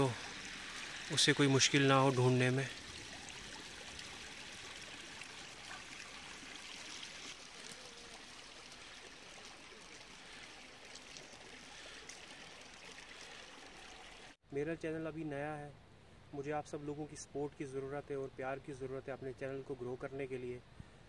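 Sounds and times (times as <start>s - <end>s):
trickling water hiss: 0.0s - 14.4s.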